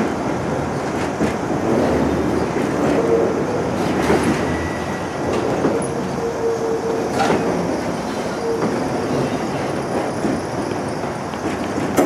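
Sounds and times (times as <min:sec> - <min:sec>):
train wheels clicking over rails: 0:00.0 - 0:06.2, 0:07.0 - 0:12.0
train wheel squeal: 0:02.4 - 0:12.0.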